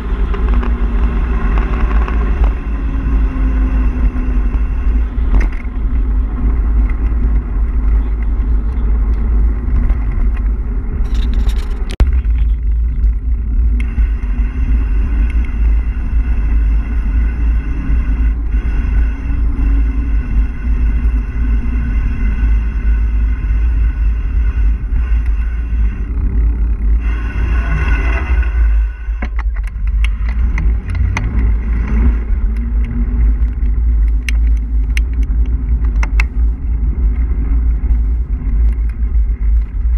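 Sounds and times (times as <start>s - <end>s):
tyres rolling on tarmac: 0.0s - 39.9s
wind buffeting microphone: 0.0s - 39.9s.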